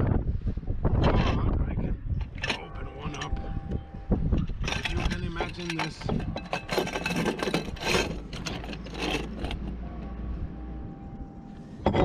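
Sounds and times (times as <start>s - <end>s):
low steady rumble: 0.0s - 12.0s
cover scraping and rubbing: 4.6s - 9.8s.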